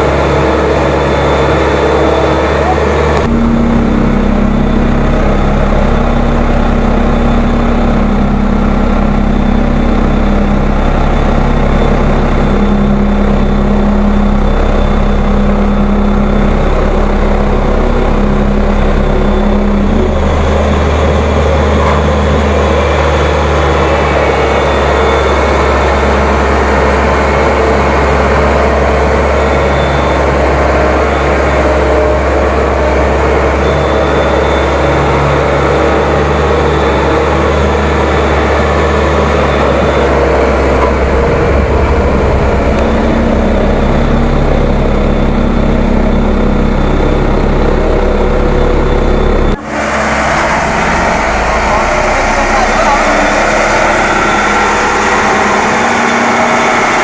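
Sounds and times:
road roller diesel engine: 0:00.0 - 0:57.0.

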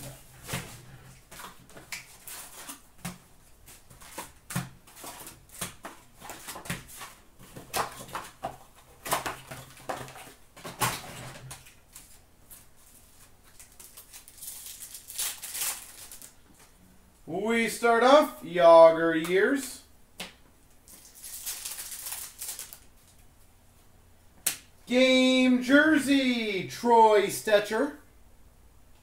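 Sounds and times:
cardboard and foil rustling: 0:00.0 - 0:16.7, 0:20.9 - 0:23.2.

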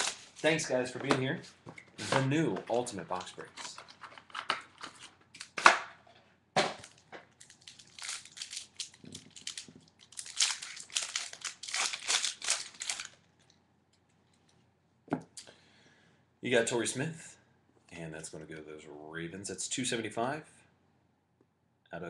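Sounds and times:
plastic wrapping crinkling and tearing: 0:00.0 - 0:00.8, 0:06.8 - 0:13.3
sharp wrapper cracks: 0:06.8 - 0:13.5.

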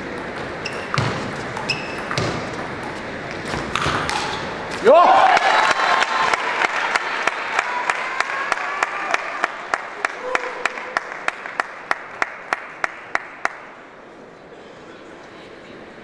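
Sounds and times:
crowd rhythmic clapping: 0:05.1 - 0:13.9.

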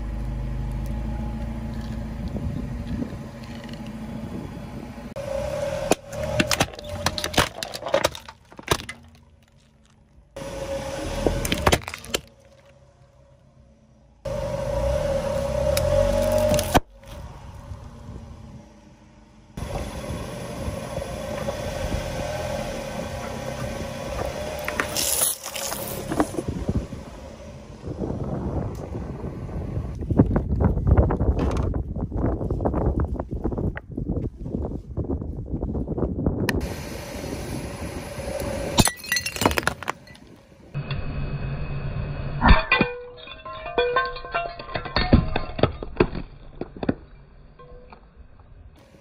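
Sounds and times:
car engine low rumble: 0:00.0 - 0:49.0
wind on microphone: 0:02.2 - 0:05.0, 0:26.1 - 0:38.8
broken pieces clinking: 0:38.8 - 0:40.4, 0:42.5 - 0:48.0.

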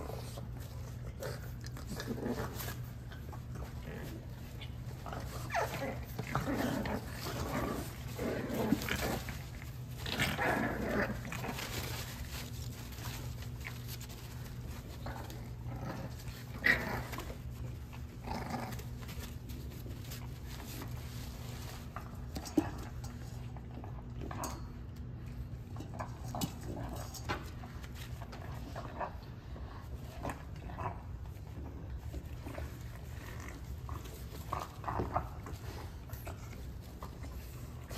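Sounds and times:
puppies growling and yipping: 0:00.0 - 0:23.1.

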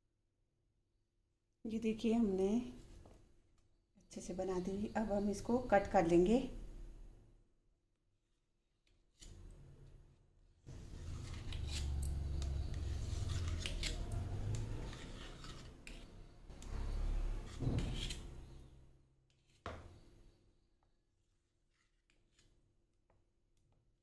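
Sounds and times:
knife scraping a plate: 0:10.9 - 0:14.1, 0:14.7 - 0:18.6.

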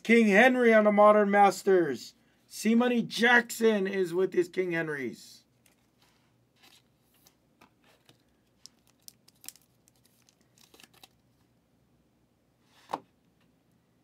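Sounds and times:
plastic sleeve crinkling: 0:05.6 - 0:11.4.

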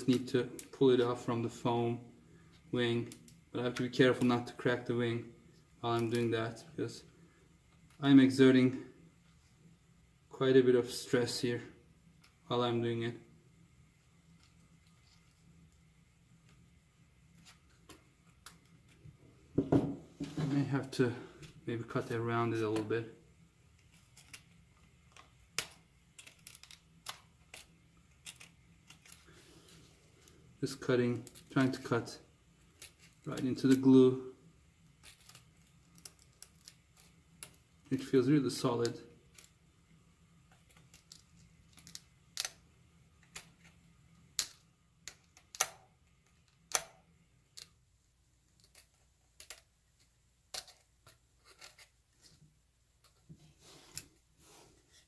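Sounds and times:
hobby knife clicking and scratching: 0:25.1 - 0:29.2, 0:50.5 - 0:52.0.

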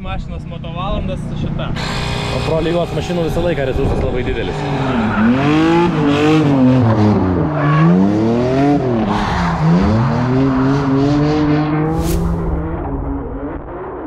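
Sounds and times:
car engine revving: 0:00.4 - 0:14.0
tyre squeal: 0:01.8 - 0:02.9
short sharp noise: 0:11.9 - 0:12.8.

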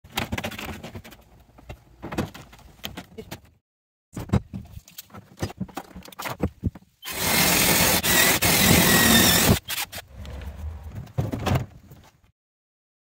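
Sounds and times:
drill hole saw grinding plastic: 0:07.0 - 0:10.1.

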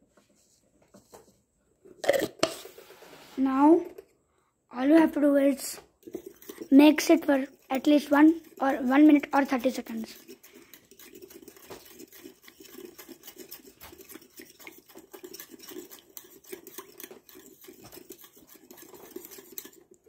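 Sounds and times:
metal spoon stirring in steel bowl: 0:05.6 - 0:20.0.

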